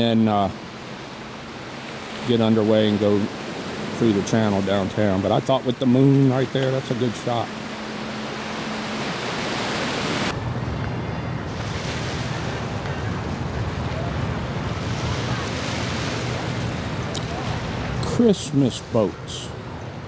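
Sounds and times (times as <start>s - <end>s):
water noise: 0.0s - 20.0s
wind rumbling on microphone: 6.2s - 18.0s.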